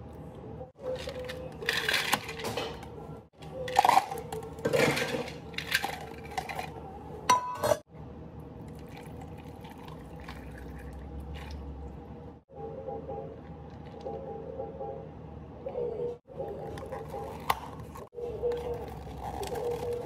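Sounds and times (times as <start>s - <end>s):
ice cubes clattering into cup: 1.0s - 2.8s.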